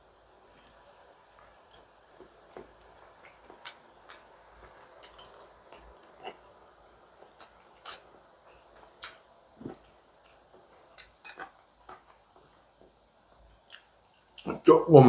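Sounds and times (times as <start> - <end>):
chewing clicks and smacks: 13.6 - 14.5.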